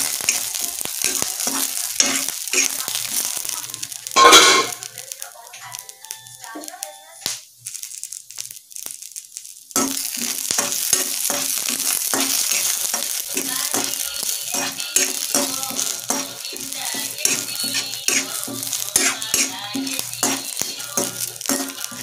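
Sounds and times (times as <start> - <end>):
metal spatula scraping pan: 0.0 - 3.0, 4.2 - 4.8, 9.8 - 22.0
food sizzling in hot oil: 0.0 - 22.0.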